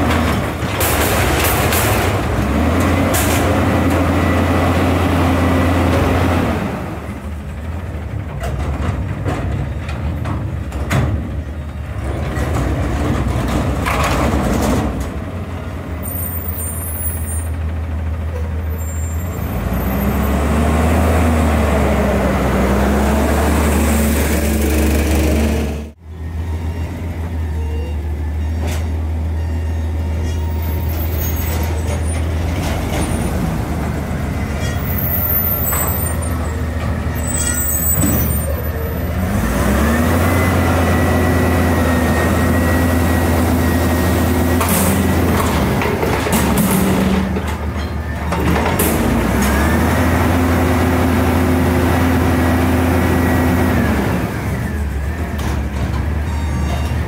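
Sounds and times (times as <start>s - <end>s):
garbage truck engine revving: 0.0s - 8.0s, 19.2s - 26.0s, 31.7s - 56.2s
air brakes squealing: 16.0s - 17.6s, 18.3s - 19.9s, 26.5s - 32.3s, 34.4s - 39.1s, 56.2s - 57.0s.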